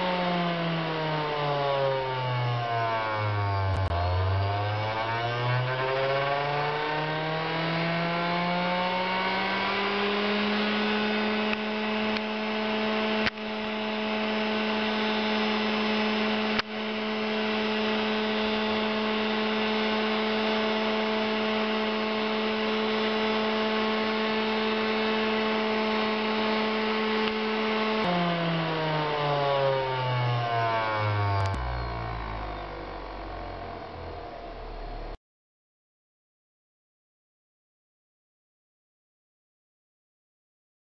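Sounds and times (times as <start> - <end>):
electric motor whine: 0.0 - 35.2
sharp clicks: 31.4 - 31.7.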